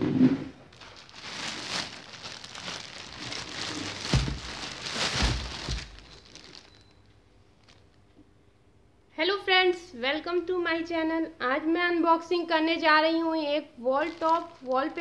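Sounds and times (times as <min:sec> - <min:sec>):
plastic mailer bags crinkling: 0:00.7 - 0:06.9, 0:07.6 - 0:08.0, 0:13.8 - 0:15.0
dull thumps: 0:02.6 - 0:06.1.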